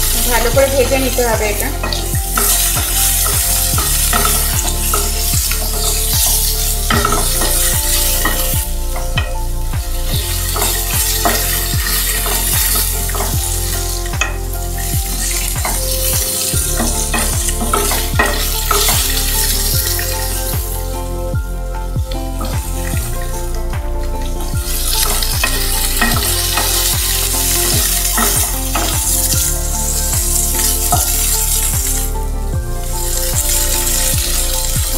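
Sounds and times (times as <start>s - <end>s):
wooden spatula scraping pan: 0.0s - 9.4s
food sizzling in oil: 0.0s - 34.9s.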